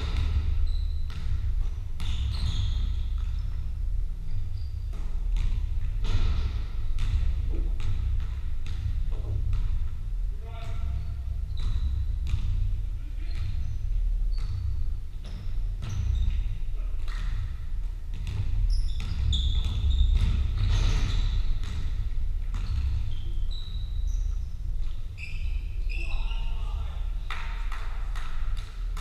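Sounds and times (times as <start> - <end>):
basketball bouncing on hardwood: 0.0 - 3.6, 4.6 - 10.0, 10.6 - 12.7, 13.3 - 23.3
shoe squeaks: 0.6 - 3.7, 4.3 - 5.0, 15.3 - 16.6, 18.6 - 21.6, 22.6 - 24.5, 25.1 - 27.0.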